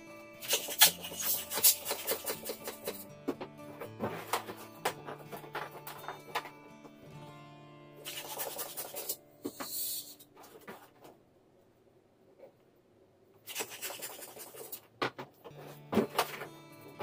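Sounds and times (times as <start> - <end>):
balloon pump pushing air: 0.4 - 3.0, 8.0 - 10.2
balloon rubber rubbing: 0.4 - 3.0, 8.0 - 10.2.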